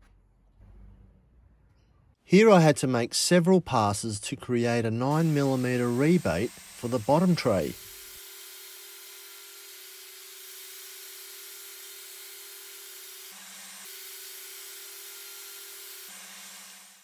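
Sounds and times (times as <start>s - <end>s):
table saw cutting wood: 4.8s - 17.0s.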